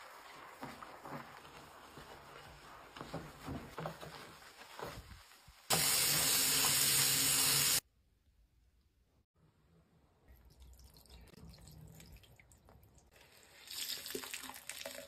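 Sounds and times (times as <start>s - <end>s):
sponge scrubbing ceramic sink: 0.0s - 7.8s.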